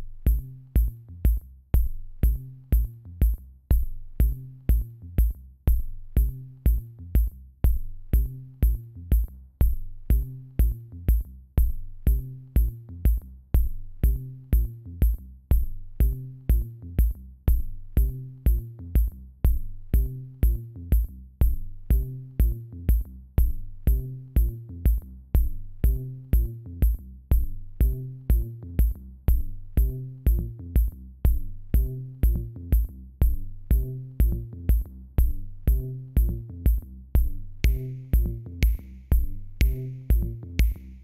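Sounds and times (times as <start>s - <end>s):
drum machine beat: 0.0s - 41.0s
repeating bass line: 18.0s - 41.0s.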